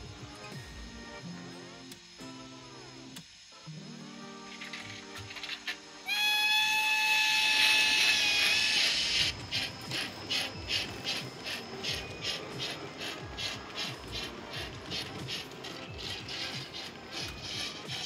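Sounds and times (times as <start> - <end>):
model locomotive exhaust chuffs: 4.5 - 18.0
model train steam whistle: 4.7 - 18.0.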